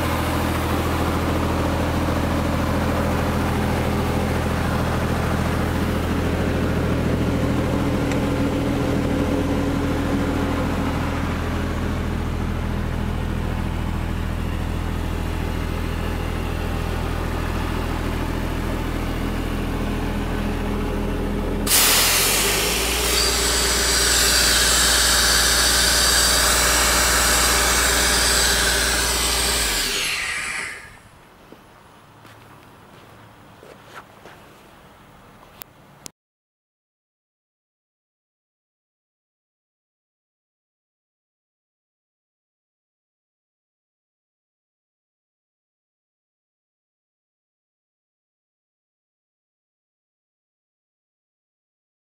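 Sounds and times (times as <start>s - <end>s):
diesel air compressor running: 0.0s - 31.3s
rushing air: 21.7s - 23.1s.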